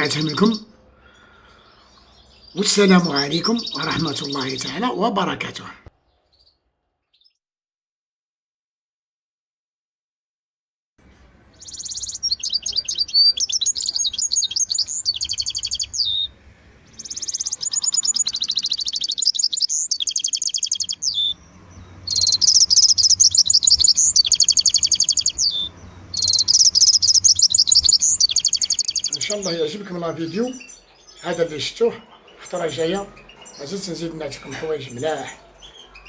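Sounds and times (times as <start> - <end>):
finch singing trilled phrases: 0.0 - 0.8, 2.3 - 5.8, 11.5 - 16.3, 16.9 - 36.0.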